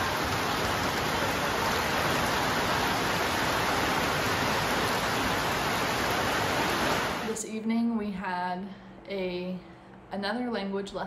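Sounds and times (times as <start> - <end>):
heavy rain on concrete: 0.0 - 7.4.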